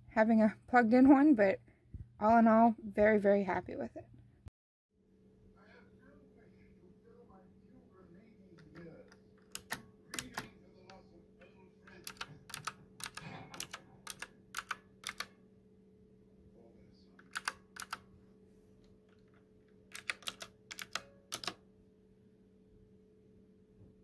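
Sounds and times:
mechanical keyboard clicks: 9.4 - 10.5, 11.9 - 15.3, 17.2 - 18.0, 19.9 - 21.6.

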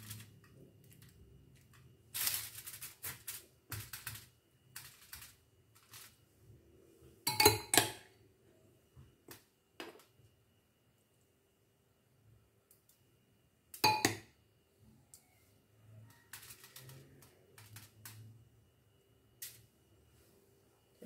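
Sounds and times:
aluminium foil crinkling: 0.0 - 6.2, 16.1 - 18.2.

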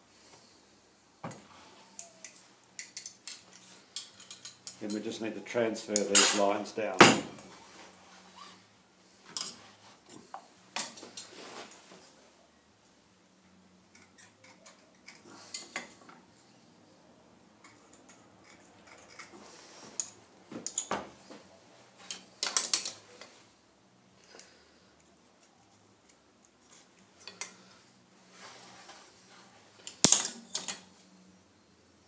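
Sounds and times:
metal tools clinking and scraping: 1.7 - 7.3, 17.6 - 21.0, 22.0 - 23.4, 26.6 - 27.7, 28.3 - 31.0.

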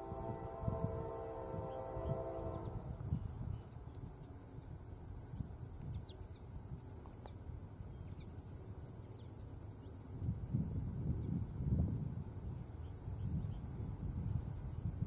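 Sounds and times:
low gusty rumble: 0.0 - 3.8, 10.2 - 15.0
insect high-pitched trill: 0.0 - 4.4
lower pulsing insect chirp: 0.0 - 15.0.

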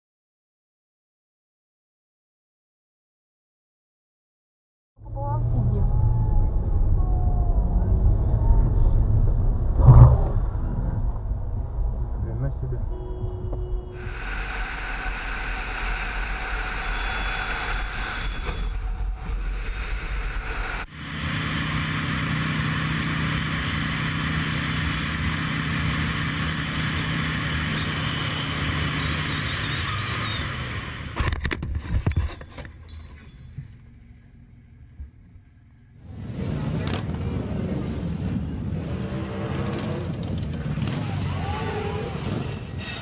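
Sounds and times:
road and wind noise: 5.0 - 43.0
motorcycle engine running: 20.6 - 31.1.

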